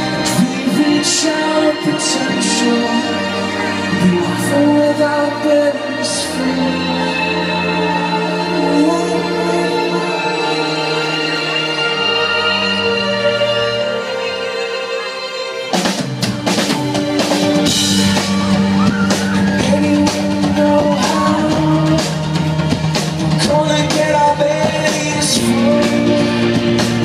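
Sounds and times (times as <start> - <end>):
person singing: 0.0 - 15.8, 18.6 - 27.0
rock band playing: 0.0 - 27.0
drum kit: 15.7 - 27.0.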